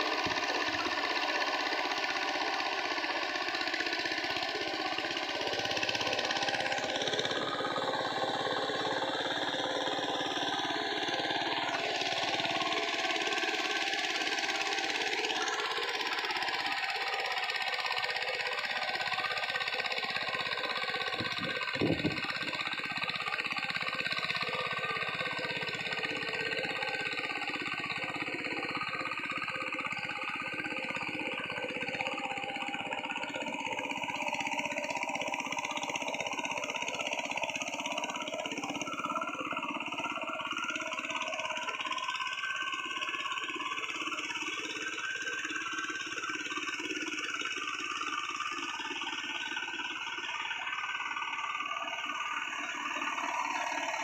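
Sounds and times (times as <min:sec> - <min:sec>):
diesel engine chugging: 0:00.0 - 0:54.0.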